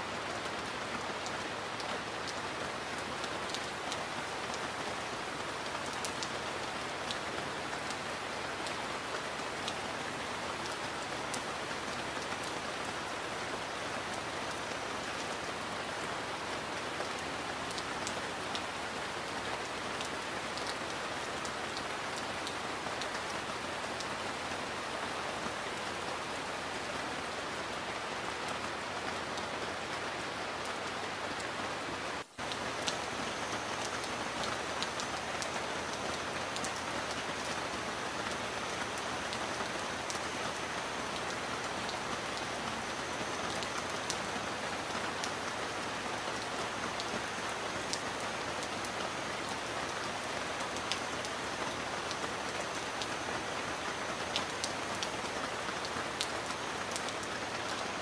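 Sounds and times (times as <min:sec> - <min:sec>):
heavy rain: 0:00.0 - 0:58.0.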